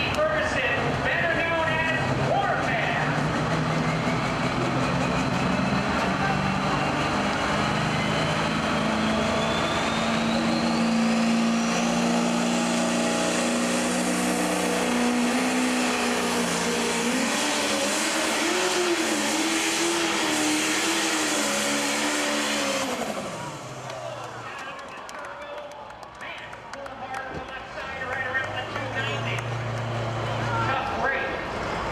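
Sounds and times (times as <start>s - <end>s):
diesel engine at full throttle: 0.0s - 31.9s.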